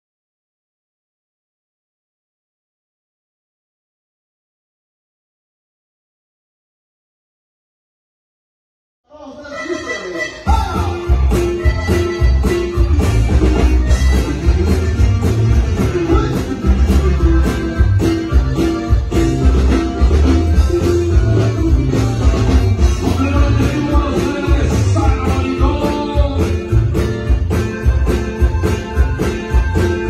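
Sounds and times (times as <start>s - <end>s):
accordion: 9.3s - 30.0s
guitar strumming: 9.4s - 30.0s
bass guitar: 9.5s - 30.0s
drum beat: 10.5s - 30.0s
person singing: 20.4s - 26.9s.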